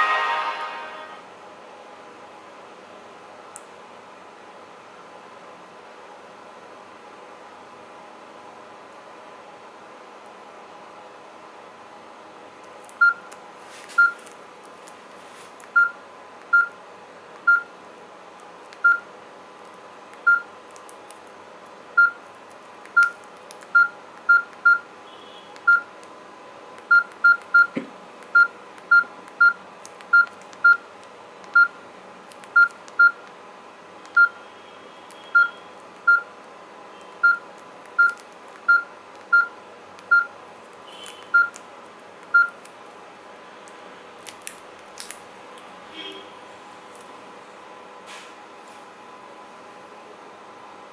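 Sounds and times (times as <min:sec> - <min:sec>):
phone keypad beeps: 0:15.8 - 0:16.8, 0:18.8 - 0:19.0, 0:20.3 - 0:20.5, 0:23.0 - 0:23.2, 0:23.8 - 0:24.8, 0:25.7 - 0:25.9, 0:26.9 - 0:27.8, 0:28.4 - 0:30.8, 0:31.5 - 0:31.8, 0:32.6 - 0:33.2, 0:34.1 - 0:34.4, 0:35.2 - 0:36.2, 0:37.2 - 0:37.4, 0:38.0 - 0:39.5, 0:40.1 - 0:40.3, 0:41.3 - 0:41.6, 0:42.3 - 0:42.6.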